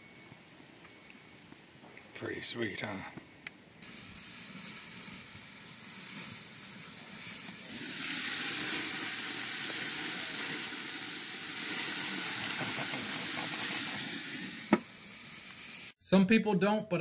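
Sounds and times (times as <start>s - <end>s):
patties sizzling on a grill: 3.8s - 16.0s.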